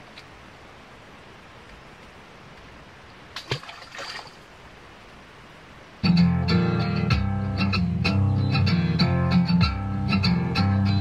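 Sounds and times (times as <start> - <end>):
steady background hiss: 0.0 - 11.0
water splashing and trickling: 1.6 - 5.9
guitar music: 6.0 - 11.0.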